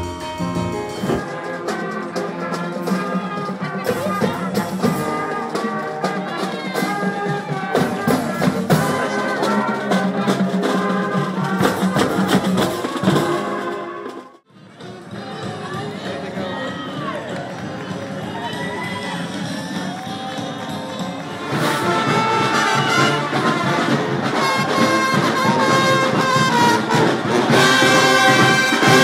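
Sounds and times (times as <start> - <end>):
drum strikes: 0.0 - 14.3, 21.4 - 29.0
brass horns: 0.0 - 29.0.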